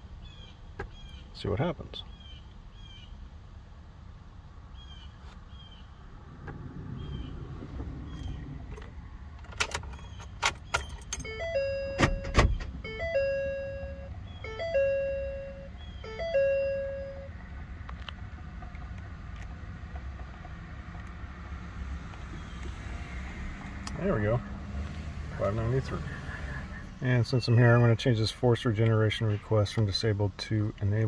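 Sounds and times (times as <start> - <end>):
warning chimes: 11.1 - 17.4.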